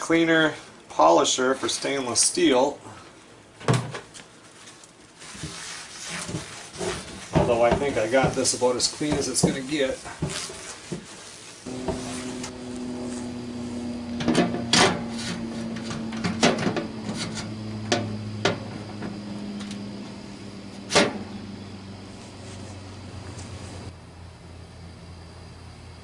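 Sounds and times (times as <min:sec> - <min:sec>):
steady low hum: 0:06.2 - 0:26.0
metal tank clanking: 0:13.3 - 0:19.6, 0:20.9 - 0:21.4.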